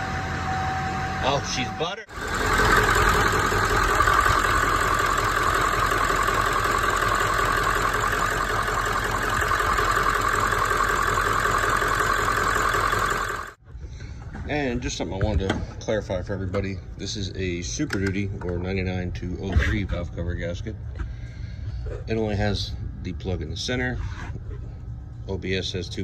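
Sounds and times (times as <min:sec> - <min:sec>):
diesel engine idling: 0:00.0 - 0:13.6.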